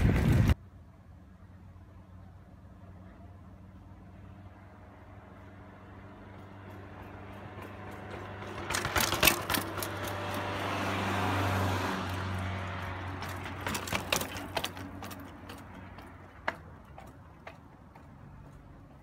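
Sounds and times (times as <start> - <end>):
vehicle passing: 0.0 - 19.0
bike clicks and rattles: 6.7 - 18.1.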